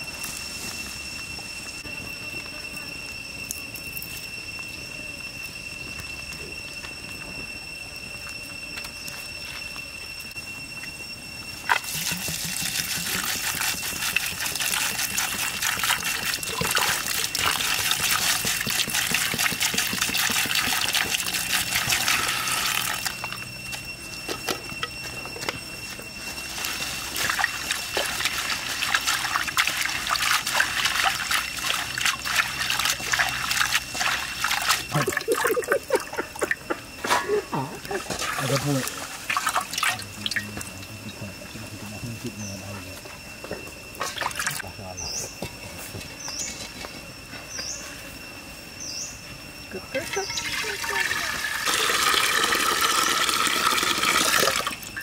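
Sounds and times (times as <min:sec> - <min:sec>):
steady high-pitched tone: 0:00.0 - 0:55.0
water splashing and sloshing: 0:11.6 - 0:23.4, 0:26.5 - 0:36.6, 0:38.0 - 0:40.8, 0:44.0 - 0:44.6
water pouring into a wok: 0:26.6 - 0:35.4, 0:50.1 - 0:55.0.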